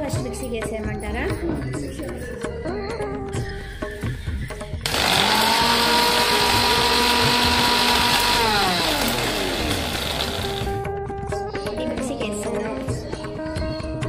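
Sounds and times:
mixer grinder whining: 4.8 - 10.8.

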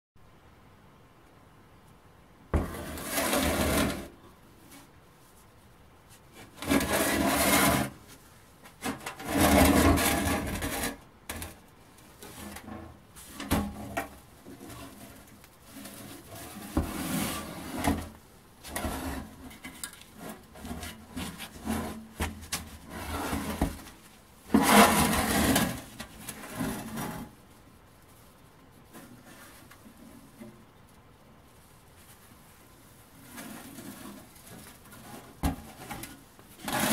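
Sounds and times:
metal box scraping and knocking: 2.6 - 4.2, 6.4 - 8.0, 8.7 - 11.6, 12.2 - 27.4, 33.2 - 36.9.

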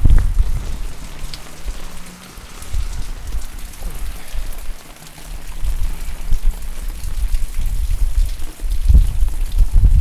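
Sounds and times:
faint road traffic: 0.0 - 7.6
wind buffeting microphone: 0.0 - 10.0.

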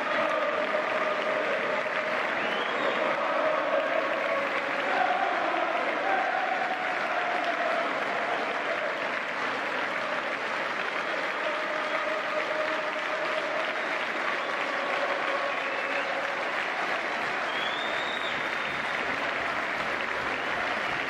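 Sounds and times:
stadium crowd applauding: 0.0 - 21.0.

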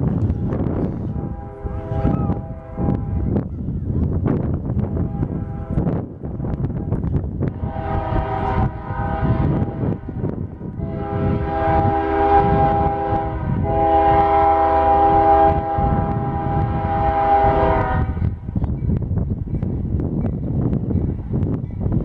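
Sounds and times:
low rumble: 0.0 - 19.5
locomotive air horn blasts: 1.0 - 3.4, 4.9 - 6.0, 6.7 - 18.3.

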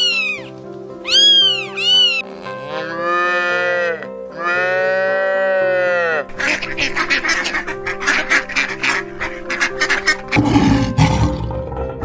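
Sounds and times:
cat meowing: 0.0 - 2.3
background music: 0.0 - 12.0
cow mooing: 2.3 - 6.4.

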